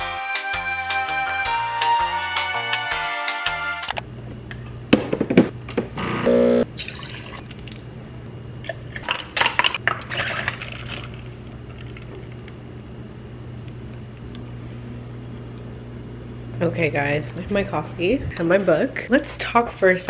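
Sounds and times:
steady low hum: 4.0 - 20.0
espresso machine buzz: 6.0 - 6.7.

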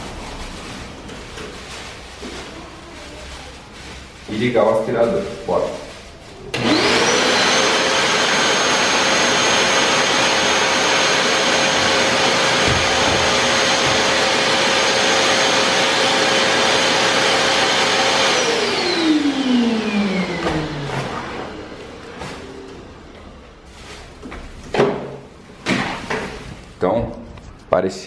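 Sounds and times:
vacuum cleaner blower whining: 6.5 - 23.5.

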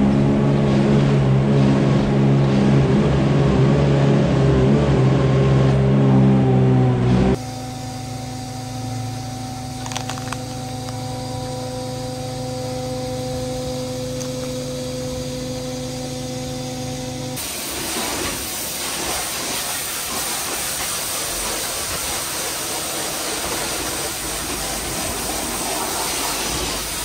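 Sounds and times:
pumping machinery humming: 0.0 - 5.3, 6.9 - 27.0
pressure washer spraying metal: 17.4 - 27.0.

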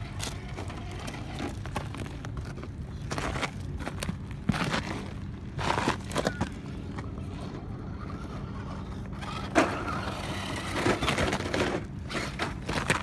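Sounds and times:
rc car motor humming: 7.0 - 12.6.

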